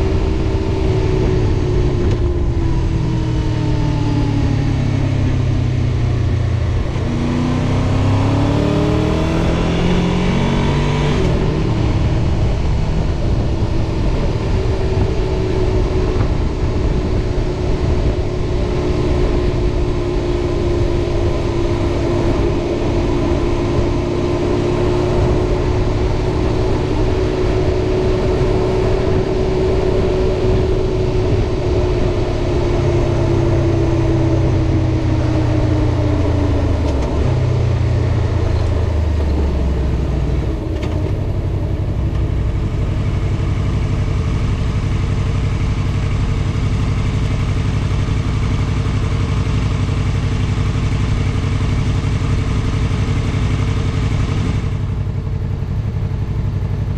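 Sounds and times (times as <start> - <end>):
motorcycle engine accelerating: 0.0 - 56.9
wind rushing on microphone: 8.3 - 42.3.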